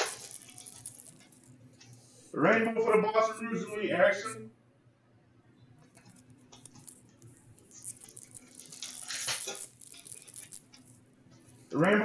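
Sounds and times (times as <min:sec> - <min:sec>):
cards crinkling and clicking: 0:00.0 - 0:02.0, 0:05.9 - 0:10.9.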